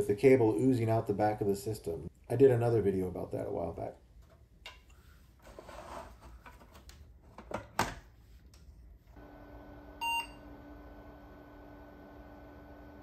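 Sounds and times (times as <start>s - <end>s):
short computer beep: 10.0s - 10.4s.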